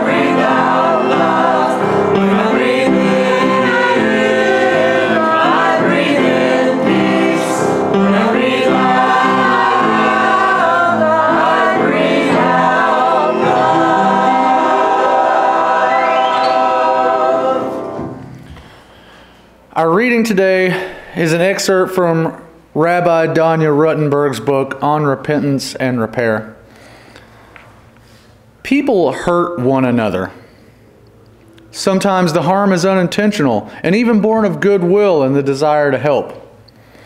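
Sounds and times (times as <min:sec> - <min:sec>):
choir singing: 0:00.0 - 0:18.5.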